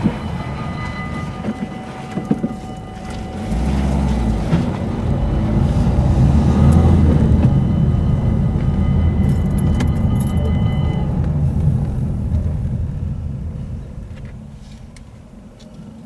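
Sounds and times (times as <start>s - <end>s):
car engine and tyres rumbling: 0.0s - 16.0s
faint high whine: 0.0s - 16.0s.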